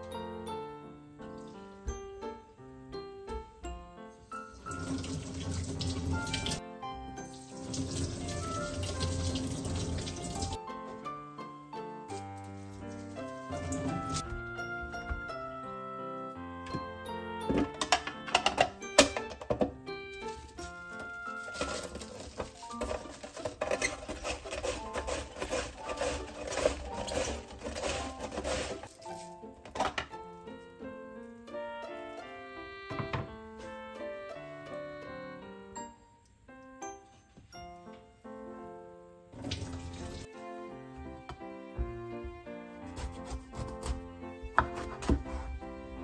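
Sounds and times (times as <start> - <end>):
background music: 0.0 - 46.0
tap water running into sink: 4.6 - 6.6, 7.2 - 10.6, 13.4 - 14.2, 39.4 - 40.3
cabbage rasping on slicer: 13.3 - 14.2, 21.3 - 29.4, 42.8 - 45.6.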